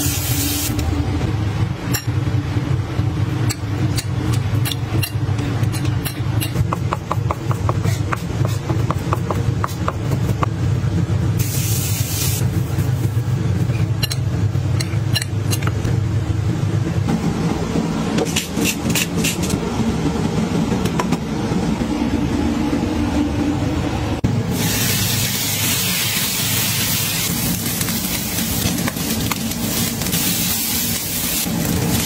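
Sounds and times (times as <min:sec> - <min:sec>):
low rumble: 0:19.2 - 0:32.0.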